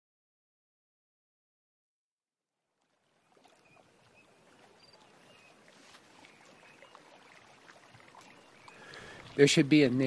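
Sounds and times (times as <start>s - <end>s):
running water: 2.6s - 10.0s.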